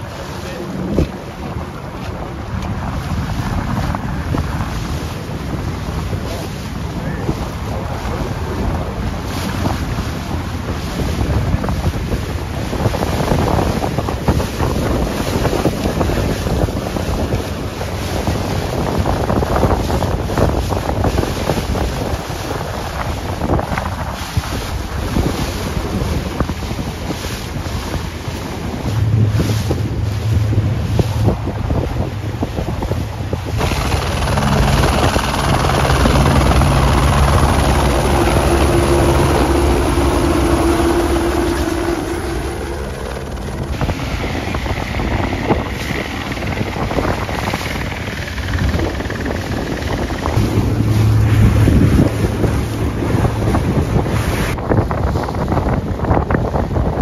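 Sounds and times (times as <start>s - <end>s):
helicopter rotor hum: 0.0s - 10.8s, 27.6s - 54.6s
waves and spray: 0.0s - 57.0s
wind buffeting microphone: 0.0s - 57.0s.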